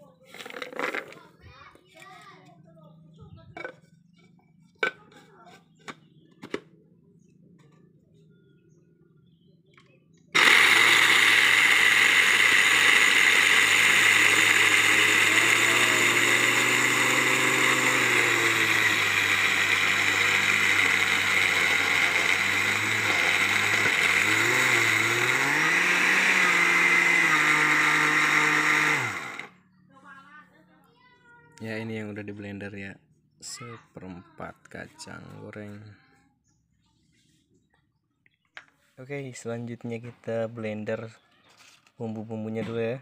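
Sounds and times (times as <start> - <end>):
electric blender grinding peanuts: 0.4 - 1.2, 10.4 - 29.5.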